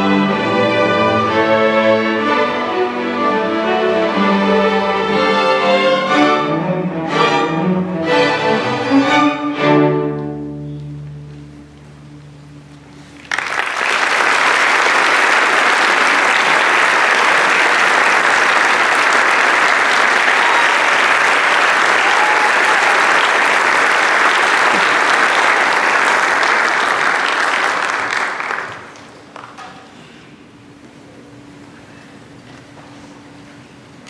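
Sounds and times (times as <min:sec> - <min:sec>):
audience applauding: 0:13.2 - 0:29.6.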